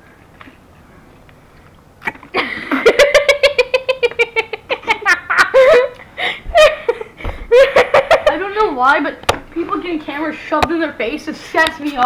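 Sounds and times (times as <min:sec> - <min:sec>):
child laughing: 0:02.3 - 0:08.6.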